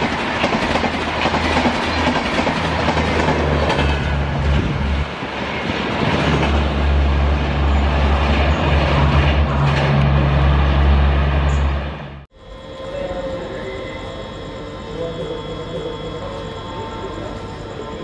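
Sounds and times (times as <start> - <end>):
train wheels rumbling on rails: 0.0 - 12.2.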